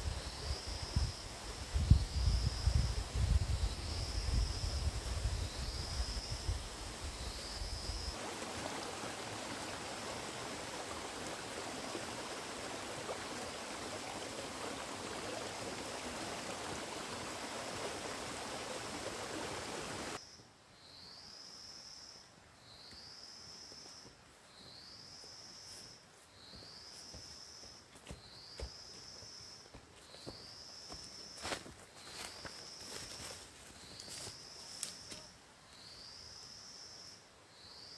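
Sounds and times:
wind rumble on microphone: 0.0s - 8.0s
stream flowing over rocks: 8.1s - 20.2s.

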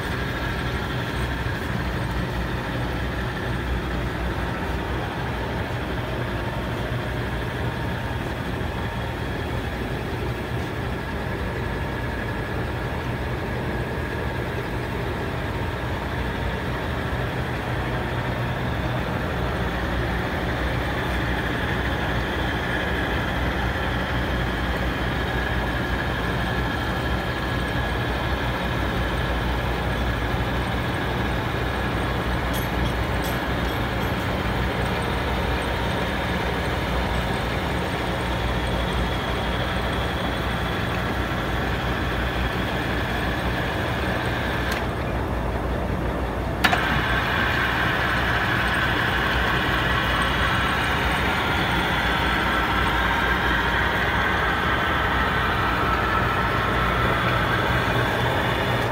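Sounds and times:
lathe motor humming: 0.0s - 58.9s.

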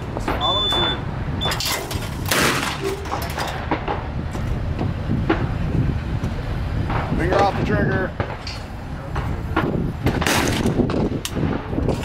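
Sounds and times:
steady low rumble: 0.0s - 12.0s
gunshot: 2.3s - 2.8s, 9.2s - 11.8s.

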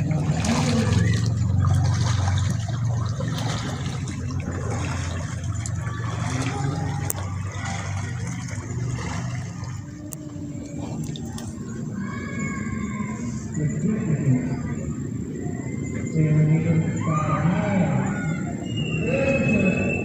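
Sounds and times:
river water rushing: 0.0s - 11.7s
low rumble: 0.0s - 20.0s.

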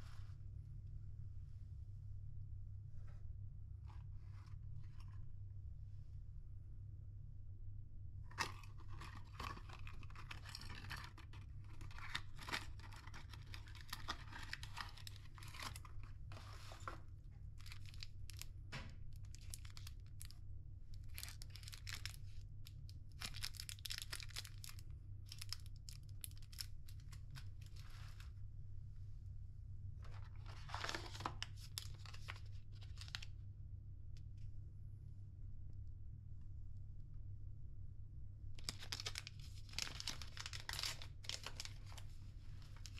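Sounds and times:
steady low hum: 0.0s - 42.9s
packaging rustling and crinkling: 8.3s - 18.5s, 19.1s - 20.4s, 21.0s - 28.3s, 30.0s - 33.3s, 38.6s - 42.9s.

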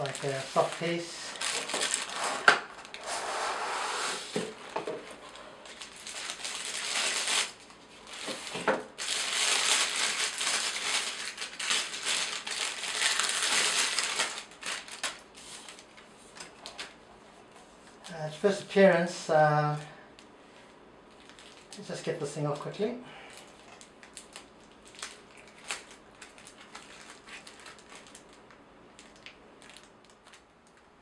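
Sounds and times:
plastic packaging crinkling: 0.0s - 3.2s, 4.3s - 17.0s, 21.1s - 21.9s, 23.3s - 31.0s.

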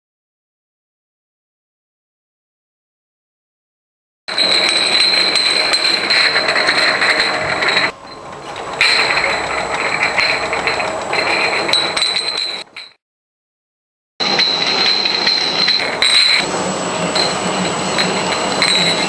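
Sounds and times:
high conveyor whine: 4.3s - 12.9s, 14.2s - 19.0s
glass bottles rattling and clinking: 4.3s - 13.0s, 14.2s - 16.5s, 17.1s - 19.0s.

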